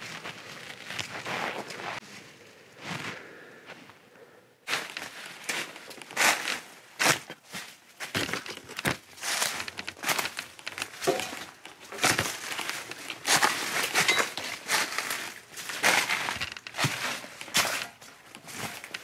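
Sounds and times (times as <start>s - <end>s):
footsteps crunching dry leaves: 4.7s - 19.0s.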